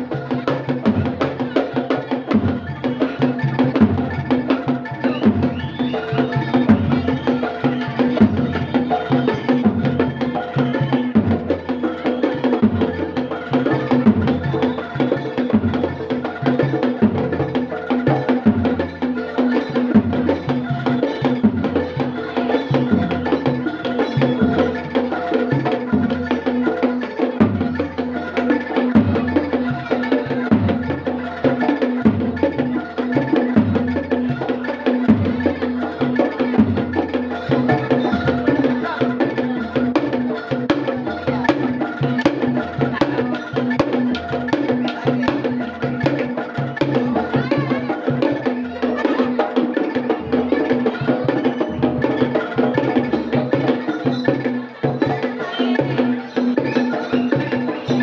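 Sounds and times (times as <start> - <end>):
clacking percussion: 0.0 - 58.0.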